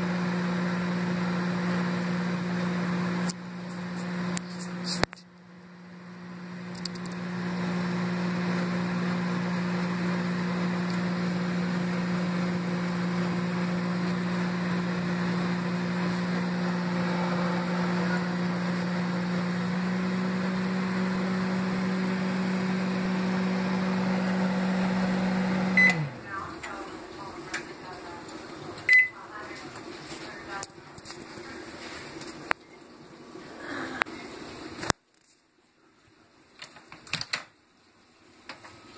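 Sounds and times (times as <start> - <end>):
microwave oven humming: 0.0 - 4.4, 5.4 - 29.6.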